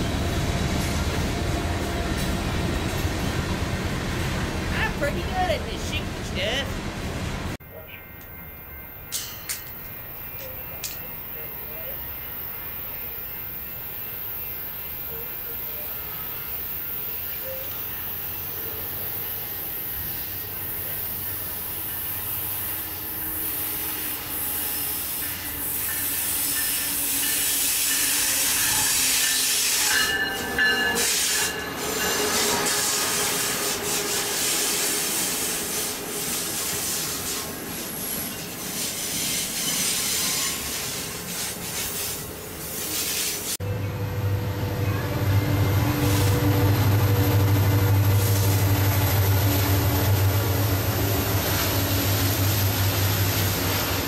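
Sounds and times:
train wheels rolling on rails: 0:00.0 - 0:05.3, 0:06.8 - 0:43.6, 0:44.8 - 0:54.0
high wheel squeal: 0:21.2 - 0:41.4
locomotive engine: 0:43.4 - 0:54.0.

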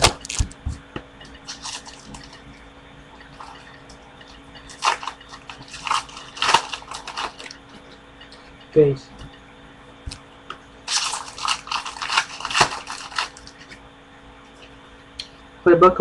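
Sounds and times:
wrapper crinkling and tearing: 0:01.5 - 0:02.4, 0:04.7 - 0:07.6, 0:10.9 - 0:13.7.

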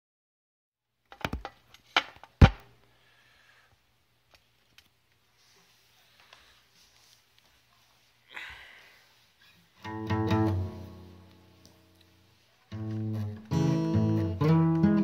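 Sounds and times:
knocks and bumps of handling: 0:01.1 - 0:02.7
faint hiss: 0:02.7 - 0:13.4.

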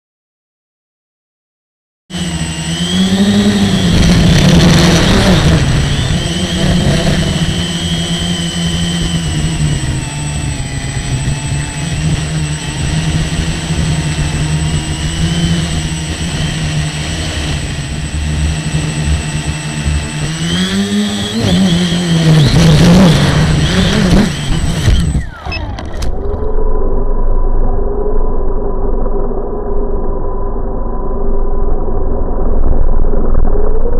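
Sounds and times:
model airplane motor running: 0:02.1 - 0:26.6.

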